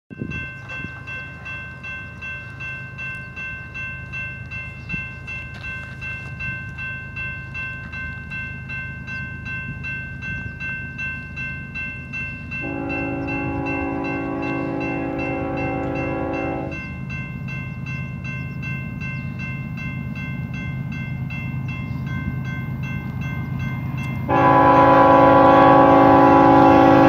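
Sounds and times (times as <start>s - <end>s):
crossing warning bells ringing: 0.1s - 27.0s
locomotive air horn: 12.6s - 16.8s, 24.3s - 27.0s.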